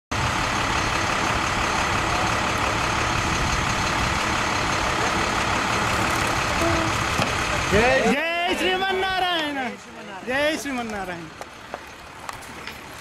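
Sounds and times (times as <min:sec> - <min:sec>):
jet engine idling: 0:00.2 - 0:08.1.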